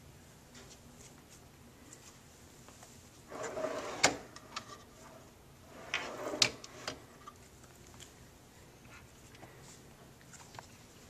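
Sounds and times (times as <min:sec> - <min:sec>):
tray sliding on drawer runners: 0:03.3 - 0:04.8, 0:05.7 - 0:07.1.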